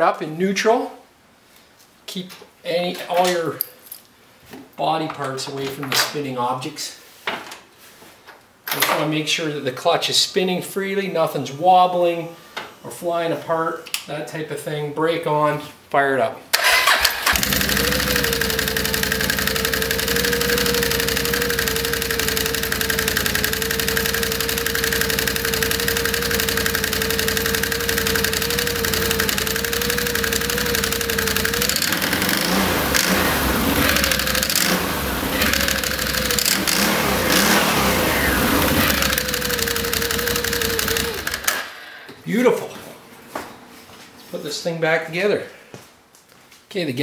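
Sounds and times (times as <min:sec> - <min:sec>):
clutches and belt whine: 0:16.6 - 0:41.7
engine starting and running: 0:16.6 - 0:41.9.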